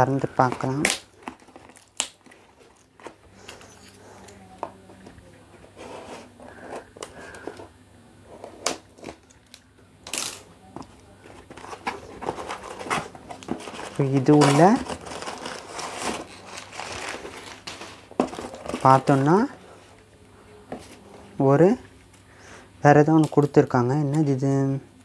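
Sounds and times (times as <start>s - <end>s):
cardboard rustling and scraping: 0.4s - 3.4s, 5.3s - 9.2s, 10.8s - 21.4s.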